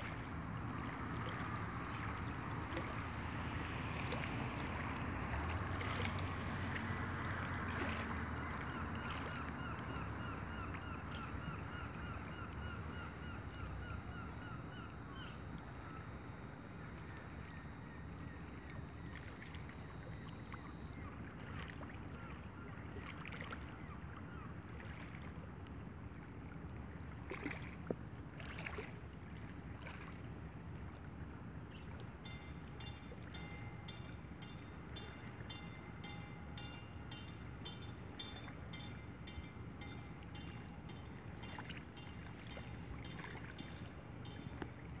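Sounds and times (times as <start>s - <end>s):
faint pulsing ring: 29.2s - 45.0s.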